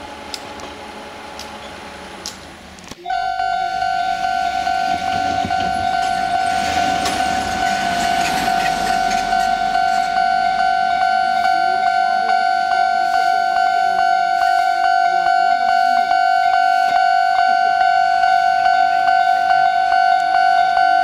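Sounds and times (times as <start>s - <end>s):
car passing: 1.8s - 13.5s
level crossing warning bell: 3.0s - 21.0s.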